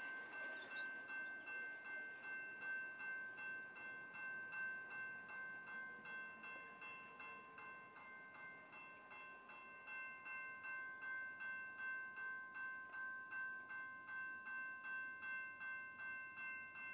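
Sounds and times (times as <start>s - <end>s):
railroad crossing bell ringing: 0.0s - 16.9s.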